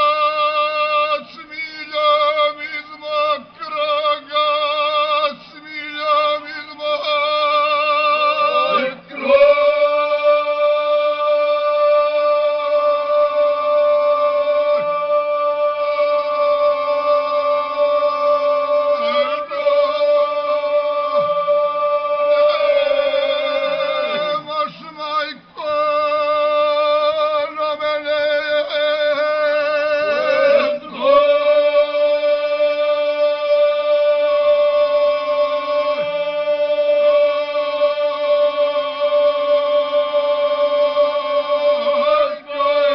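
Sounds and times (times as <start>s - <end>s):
men singing unaccompanied: 0.0s - 42.9s.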